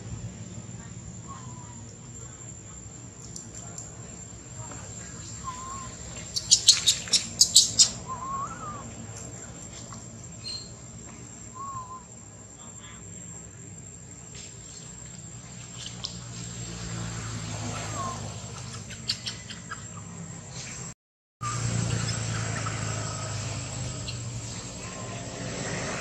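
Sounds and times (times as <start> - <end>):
low hum: 0.0 - 18.8
whistled calls: 4.8 - 12.9, 17.6 - 20.8, 21.4 - 26.0.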